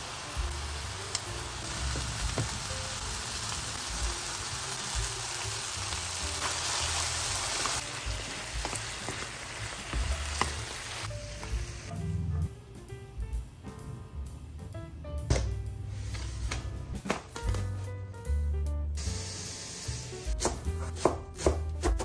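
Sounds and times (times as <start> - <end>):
vegetables sizzling in frying pan: 0.0 - 11.9.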